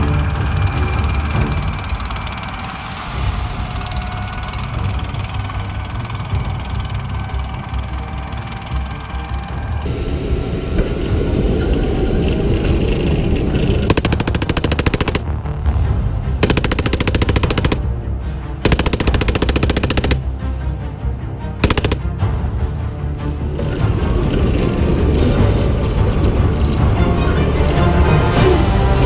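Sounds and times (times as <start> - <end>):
machine gun bursts: 13.6 - 15.2, 16.4 - 17.8, 18.6 - 20.2, 21.6 - 22.1.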